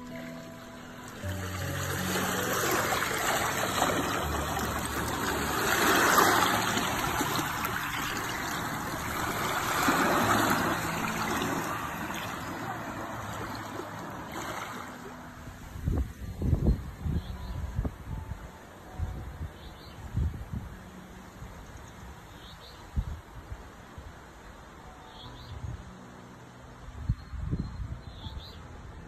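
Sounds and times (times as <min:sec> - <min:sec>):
waves lapping on pebbles: 0:01.0 - 0:15.2.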